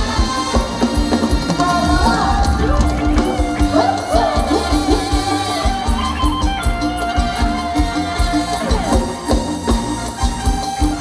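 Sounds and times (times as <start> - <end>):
live folk dance band music: 0.0 - 11.0.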